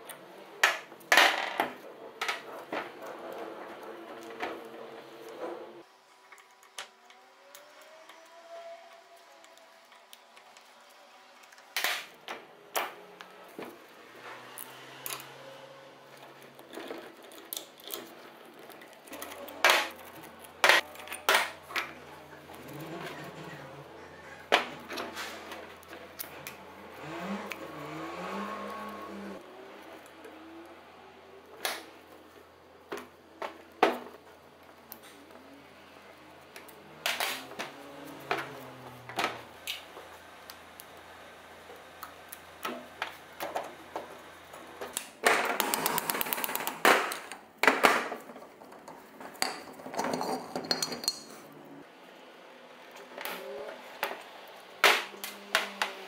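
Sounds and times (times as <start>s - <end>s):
metal tools clinking: 49.3s - 51.5s.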